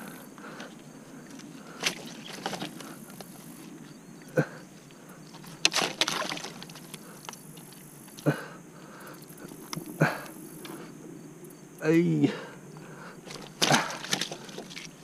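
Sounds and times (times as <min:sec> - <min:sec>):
rustling in landing net: 0:01.4 - 0:03.7, 0:05.3 - 0:07.8, 0:13.2 - 0:15.0.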